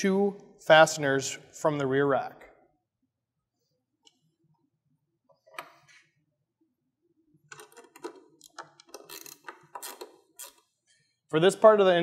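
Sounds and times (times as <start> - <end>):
ratcheting wrench: 7.9 - 10.7.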